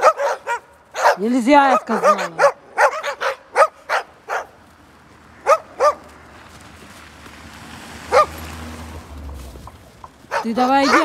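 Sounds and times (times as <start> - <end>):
dog barking: 0.0 - 4.6, 5.4 - 6.1, 8.1 - 8.4, 10.3 - 11.0.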